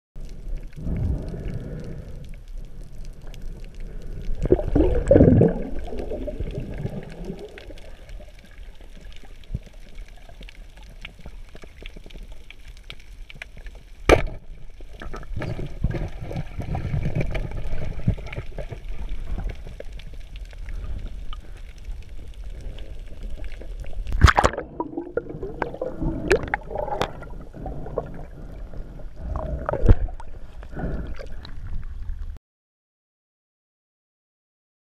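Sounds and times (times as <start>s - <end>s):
underwater rumble of water: 0.2s - 32.4s
water gurgling and churning: 4.4s - 8.3s, 24.0s - 31.9s.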